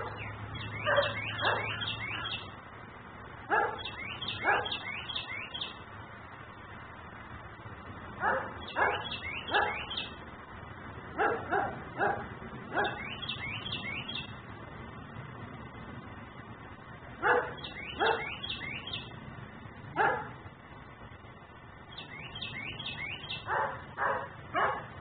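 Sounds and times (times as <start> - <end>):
small bird chirping: 0.0 - 2.6, 3.6 - 5.8, 8.6 - 10.2, 12.8 - 14.4, 17.3 - 19.2, 21.8 - 23.8
dog barking: 0.8 - 1.8, 3.5 - 4.8, 8.2 - 9.9, 11.2 - 13.0, 17.2 - 18.4, 20.0 - 20.4, 23.4 - 25.0.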